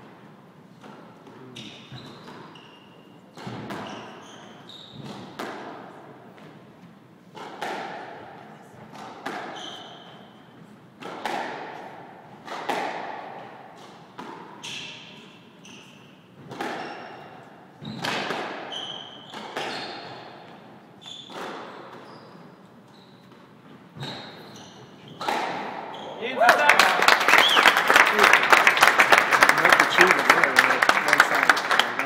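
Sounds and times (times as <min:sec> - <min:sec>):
shoe squeaks: 0:01.4 - 0:05.4, 0:09.5 - 0:10.6, 0:14.6 - 0:26.4
squash ball hits echoing: 0:03.3 - 0:04.0, 0:07.4 - 0:10.1, 0:11.0 - 0:15.0, 0:16.4 - 0:17.1, 0:17.8 - 0:20.1, 0:21.3 - 0:22.0, 0:25.1 - 0:26.4.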